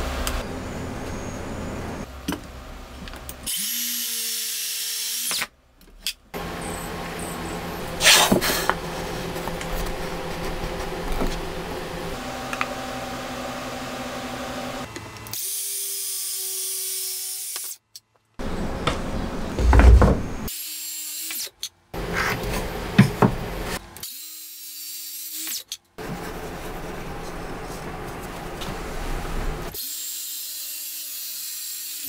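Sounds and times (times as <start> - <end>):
wooden boards sliding and set down: 18.8 - 20.5
loud knocks: 19.6 - 20.5.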